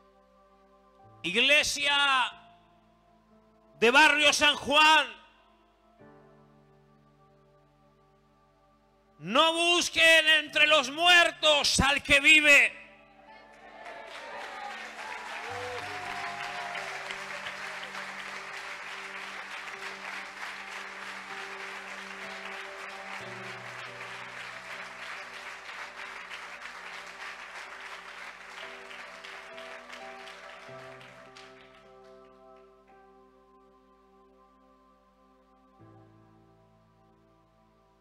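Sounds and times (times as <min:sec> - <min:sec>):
congregation clapping: 0:13.5 - 0:33.0.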